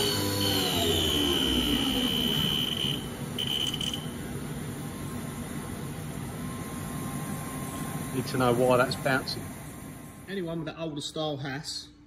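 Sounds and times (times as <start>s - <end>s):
spindle motor whine spinning down: 0.0s - 9.4s
steady high tone: 0.0s - 10.2s
machine hum: 0.0s - 12.0s.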